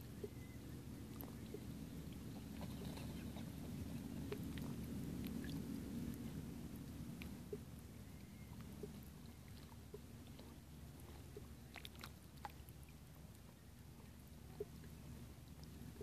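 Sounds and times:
steady low rumble: 0.0s - 16.0s
sea water lapping on rocks: 1.1s - 6.4s, 8.6s - 13.3s.

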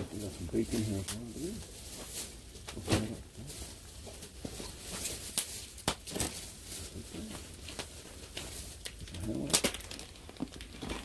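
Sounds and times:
wood fire crackling: 0.0s - 11.0s.

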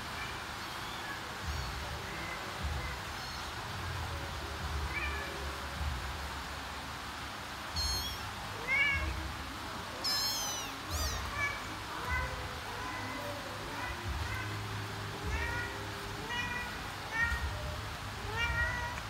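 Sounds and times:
kittens mewing high-pitched: 7.7s - 9.2s, 10.0s - 19.0s
mother cat meowing: 7.8s - 9.3s, 10.0s - 19.0s.

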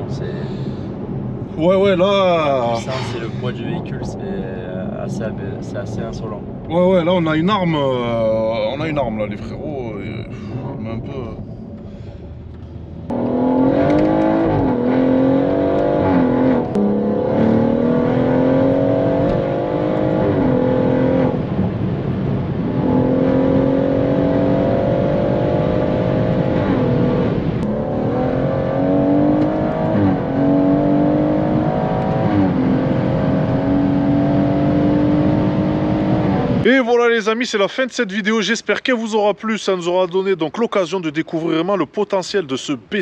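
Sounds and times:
car engine accelerating: 10.8s - 36.7s.

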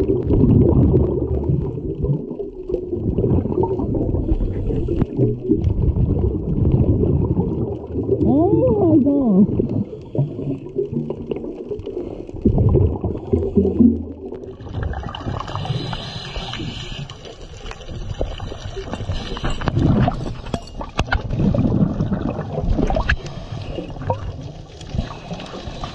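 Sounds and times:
underwater bubbling of exhaled air: 0.0s - 25.9s
hiss: 15.6s - 17.2s.

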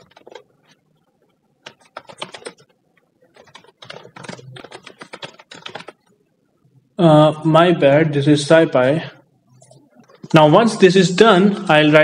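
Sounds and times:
typing on computer keyboard: 0.0s - 0.8s, 1.6s - 6.1s.

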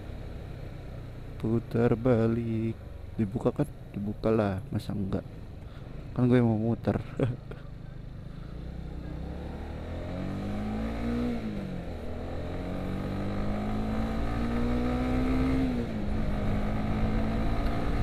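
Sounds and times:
wind and road rumble: 0.0s - 18.0s
motorcycle engine accelerating: 7.8s - 18.0s.

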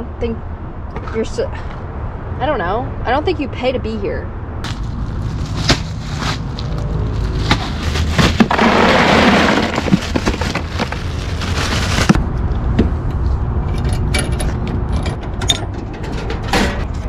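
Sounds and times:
plastic bag crinkling: 4.7s - 12.2s
ice cubes clattering: 7.8s - 12.1s.

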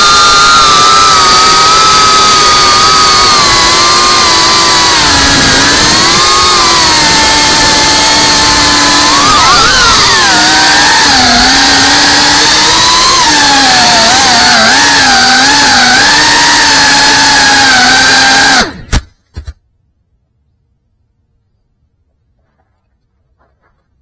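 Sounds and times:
quadcopter motors whining: 0.0s - 19.1s.

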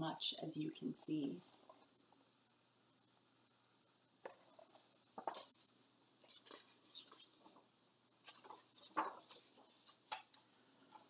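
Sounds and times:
book pages turning: 4.3s - 7.6s, 8.2s - 10.3s.

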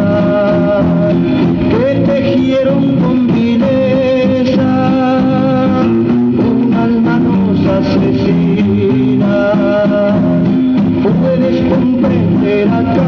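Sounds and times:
guitar music from vinyl record: 0.0s - 13.0s.

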